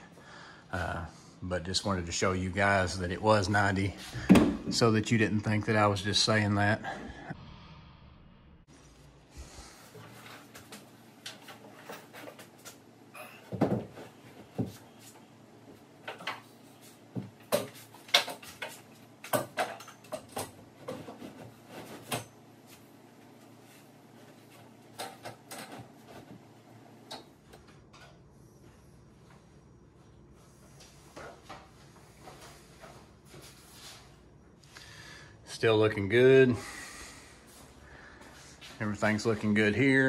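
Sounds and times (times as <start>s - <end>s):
tools and cabinet parts clattering: 10.1s - 14.8s, 17.2s - 22.5s, 24.8s - 26.4s.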